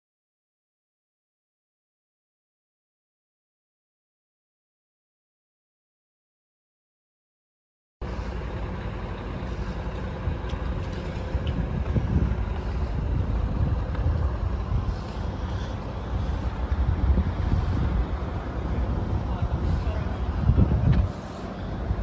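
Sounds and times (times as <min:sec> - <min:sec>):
diesel truck engine idling: 0:08.0 - 0:22.0.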